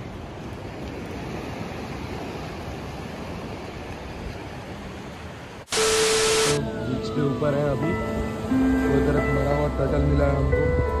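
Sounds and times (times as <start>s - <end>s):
sea surf washing up beach: 0.0s - 6.7s.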